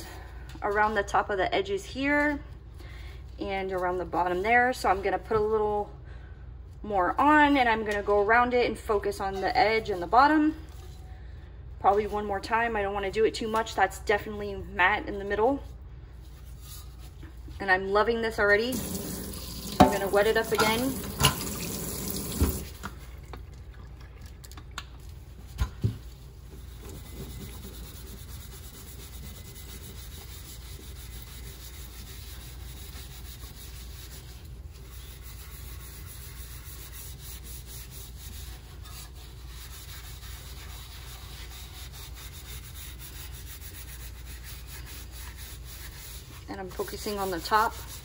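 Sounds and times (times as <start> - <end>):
wet rubbing on tumbler: 15.1 - 20.9, 21.9 - 48.0.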